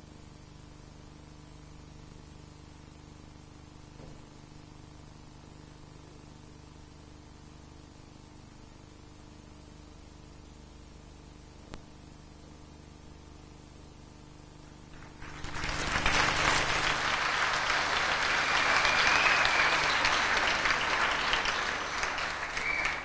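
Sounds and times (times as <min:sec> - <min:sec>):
audience applauding: 0:15.0 - 0:23.0.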